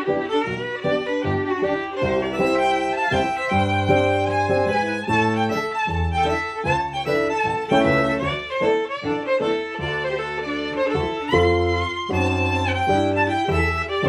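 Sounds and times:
fiddle playing dance tune: 0.0s - 14.0s.

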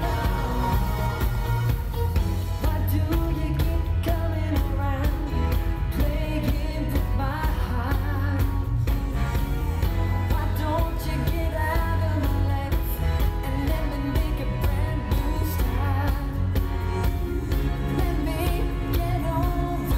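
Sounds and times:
male vocal group singing: 0.0s - 1.9s
band with drums and bass: 0.0s - 19.9s.

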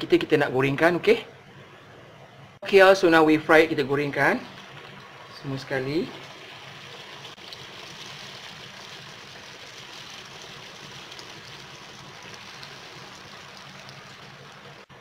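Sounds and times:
oil sizzling in a wok: 4.0s - 15.0s
faint crackles: 6.1s - 14.9s.

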